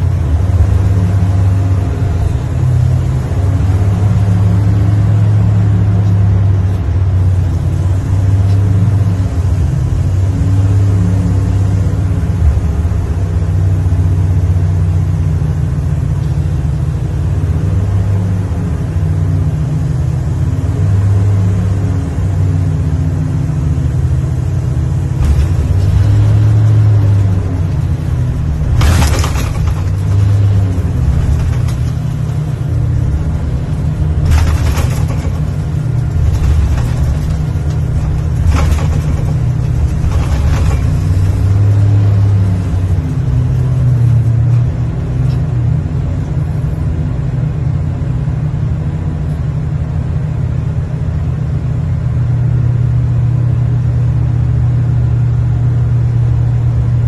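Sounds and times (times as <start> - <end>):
heavy machine engine droning: 0.0 - 57.0
bursts of hiss or clatter: 25.2 - 33.1.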